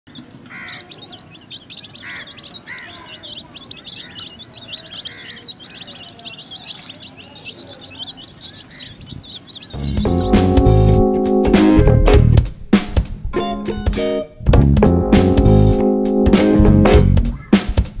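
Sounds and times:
lower arched bird call: 0.1s - 11.5s
chicks peeping: 0.1s - 12.0s.

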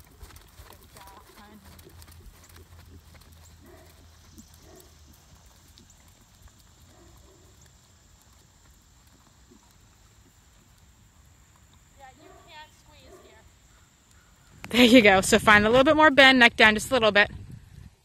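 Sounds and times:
horse hoofbeats on sand: 0.0s - 10.8s.

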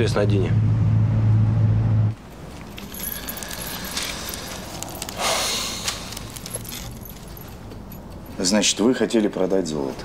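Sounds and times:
thin chain clinking: 2.3s - 8.9s
paper rustling: 2.5s - 7.6s.

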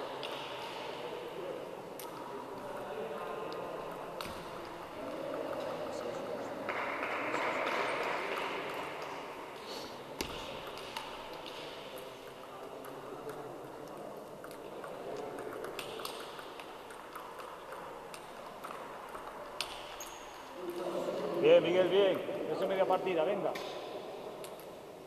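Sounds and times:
murmur of busy sports hall: 0.0s - 25.0s
table tennis ball clicking: 3.4s - 9.1s, 10.2s - 20.6s.

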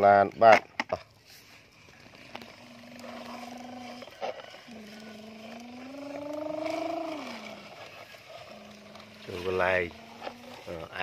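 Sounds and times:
person imitating truck engine: 4.7s - 7.6s.

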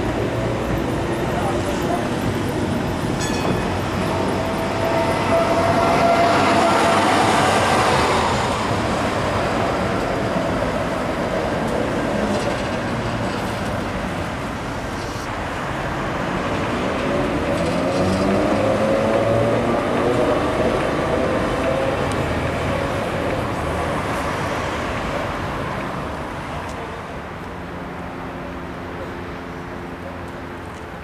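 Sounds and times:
steady whining tone: 0.0s - 9.3s
tram rolling on rails: 0.0s - 31.0s.

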